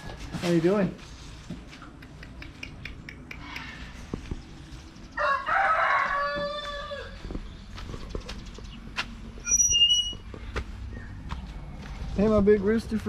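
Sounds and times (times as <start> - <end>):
rooster crowing: 5.2 - 7.3.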